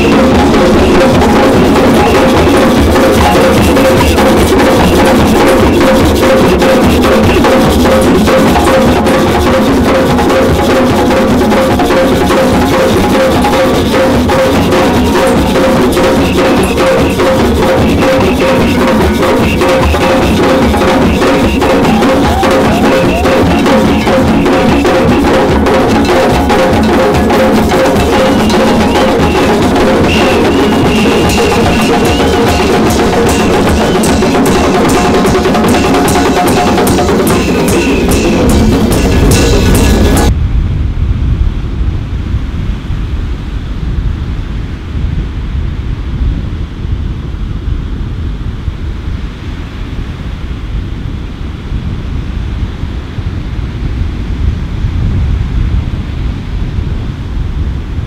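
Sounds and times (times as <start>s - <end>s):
hand drums playing fast rhythm: 0.0s - 40.3s.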